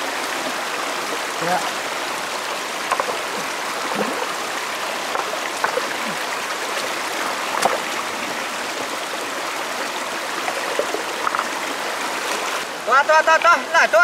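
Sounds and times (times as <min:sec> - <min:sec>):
stream rushing over rocks: 0:00.0 - 0:14.0
splashes in water: 0:02.9 - 0:08.1.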